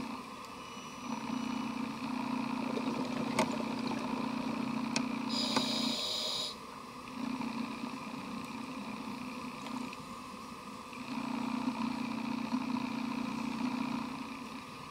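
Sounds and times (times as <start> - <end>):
scuba regulator bubbling exhalation: 2.6 - 4.2
regulator inhalation hiss: 5.3 - 6.6.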